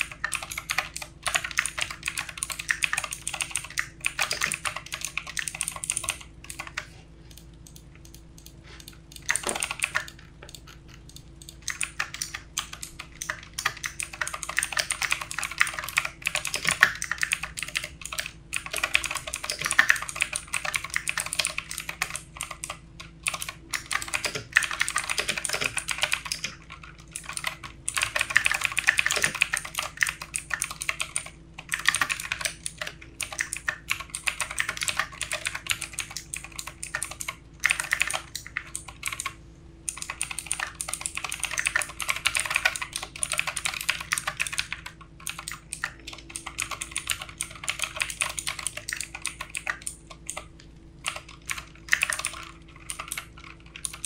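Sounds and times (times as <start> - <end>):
mechanical keyboard typing: 0.0 - 54.0.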